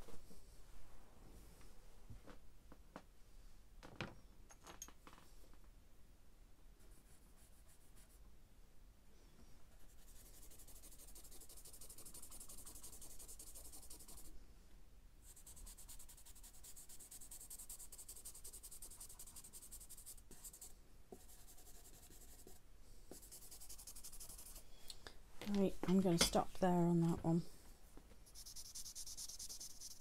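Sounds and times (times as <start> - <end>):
pencil scratching on paper: 9.7 - 14.3, 15.2 - 24.6, 28.2 - 30.0.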